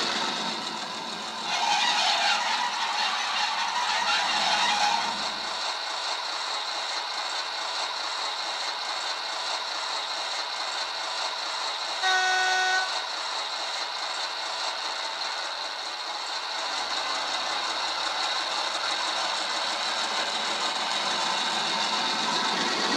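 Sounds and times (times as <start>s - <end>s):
diesel engine sound from small speaker: 0.0s - 22.9s
short horn blast: 12.0s - 13.0s.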